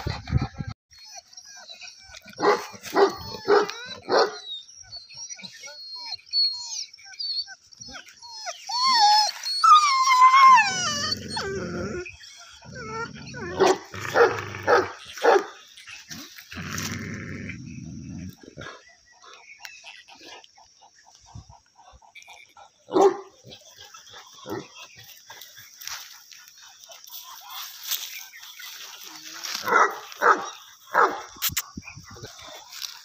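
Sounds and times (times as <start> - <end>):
dog whining yelps: 0.9 - 15.4
dog barking: 2.4 - 4.4, 13.6 - 15.5, 22.9 - 23.3, 29.6 - 31.3.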